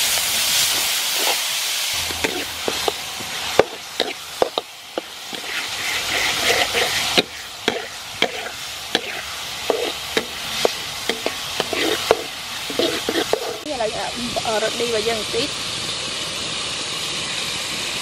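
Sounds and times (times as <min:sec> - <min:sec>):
vegetables sizzling in oil: 0:00.0 - 0:18.0
spatula scraping metal pan: 0:02.0 - 0:13.7.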